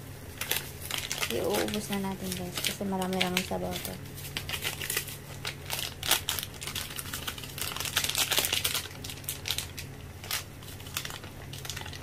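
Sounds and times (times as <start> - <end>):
steady low hum: 0.0 - 12.0
broth boiling and bubbling: 6.0 - 12.0.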